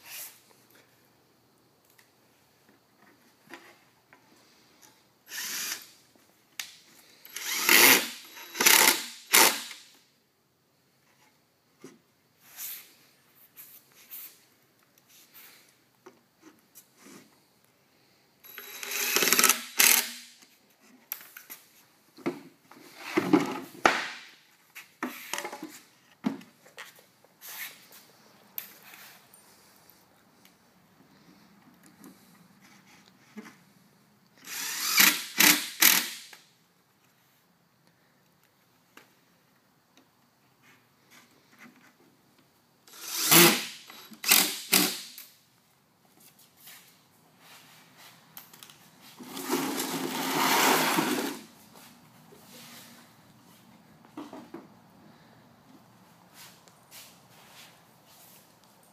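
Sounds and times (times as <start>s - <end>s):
cordless drill drilling wood: 5.3s - 5.9s, 7.3s - 9.8s, 18.5s - 20.2s, 34.4s - 36.2s, 42.9s - 45.1s.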